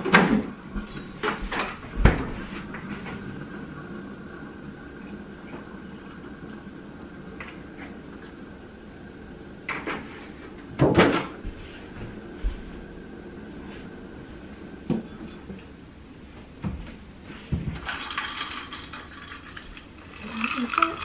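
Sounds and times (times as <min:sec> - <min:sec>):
cupboard door opening and shutting: 0:00.0 - 0:02.5.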